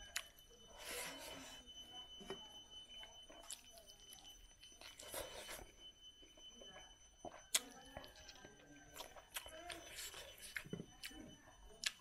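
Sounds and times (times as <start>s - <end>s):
person chewing: 3.3s - 5.7s, 7.2s - 11.2s, 11.8s - 12.0s.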